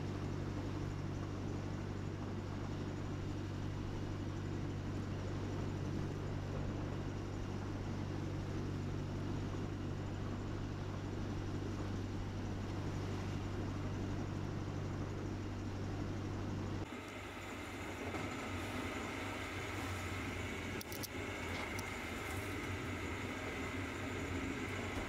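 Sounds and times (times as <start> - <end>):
boat engine droning: 0.0 - 25.0.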